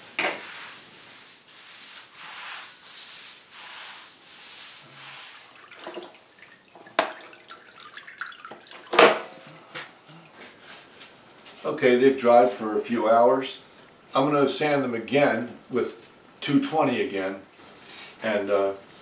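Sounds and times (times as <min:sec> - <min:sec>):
mop swishing on concrete: 0:00.0 - 0:07.3, 0:09.7 - 0:11.7
water sloshing: 0:05.4 - 0:10.7.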